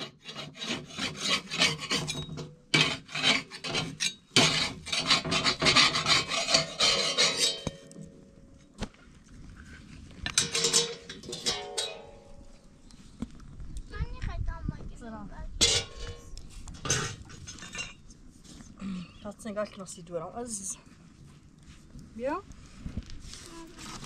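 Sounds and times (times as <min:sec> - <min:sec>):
rapid rough scraping: 0:02.8 - 0:07.8.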